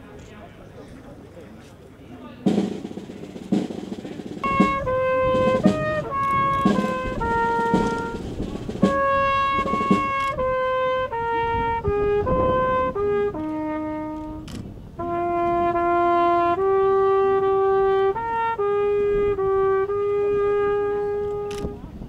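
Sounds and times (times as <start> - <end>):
solo trumpet bugle call: 4.4 - 21.9.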